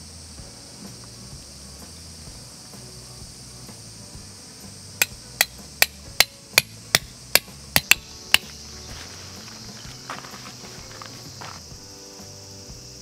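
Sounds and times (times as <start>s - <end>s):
insect buzz: 0.0s - 13.0s
hammer striking metal tent peg: 5.0s - 8.5s.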